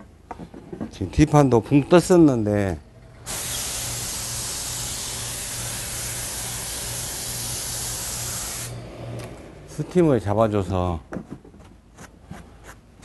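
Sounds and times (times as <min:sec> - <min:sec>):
steam iron hissing: 0:03.3 - 0:08.8.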